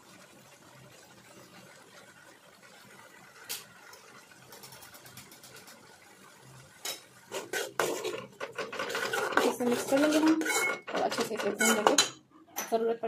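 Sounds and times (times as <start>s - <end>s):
spoon scraping pan: 6.9s - 12.7s
metal spoon clinking on pan: 8.4s - 12.8s.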